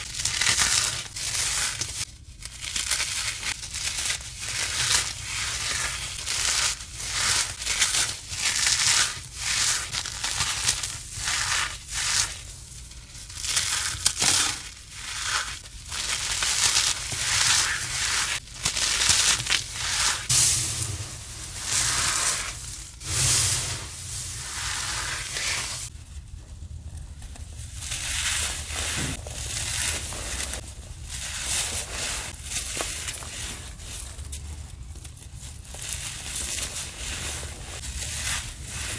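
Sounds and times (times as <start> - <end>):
powder blocks crunching by hand: 0.0 - 25.9.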